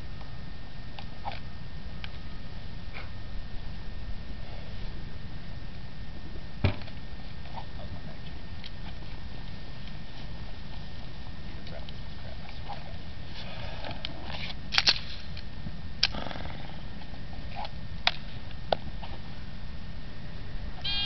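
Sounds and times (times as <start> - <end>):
wind rumble: 0.0 - 21.0
pistol metallic clicks: 14.7 - 15.1.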